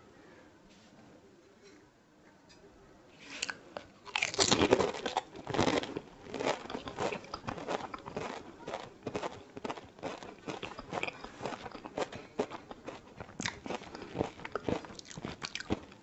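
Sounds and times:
crisp shells crunching: 0:04.1 - 0:16.0.

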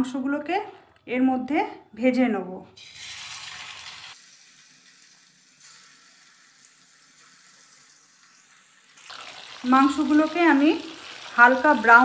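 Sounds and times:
chicken sizzling in hot oil: 0:02.8 - 0:12.0.

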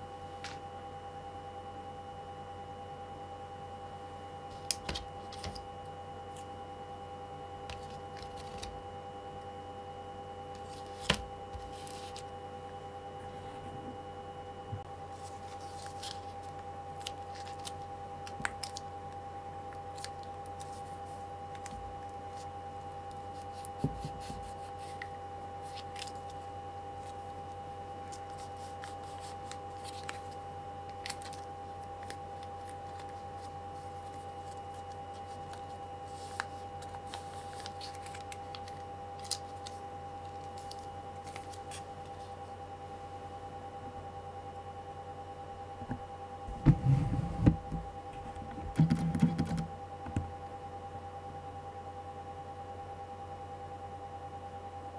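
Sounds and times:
steady hum: 0:00.0 - 0:54.9
plastic pouches crinkling: 0:15.1 - 0:18.8, 0:28.1 - 0:41.8.

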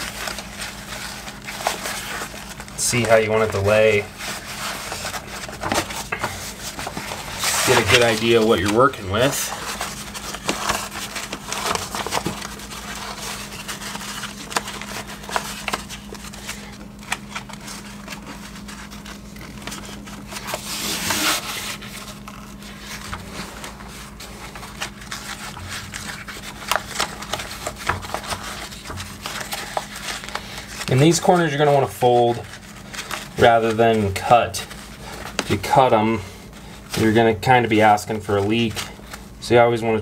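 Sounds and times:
membrane crinkling and rustling: 0:00.0 - 0:40.0.

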